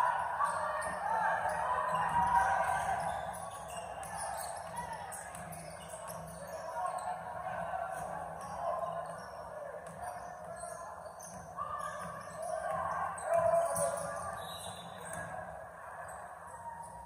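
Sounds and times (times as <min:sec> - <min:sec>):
sneakers squeaking: 0:00.4 - 0:07.3, 0:08.8 - 0:15.3.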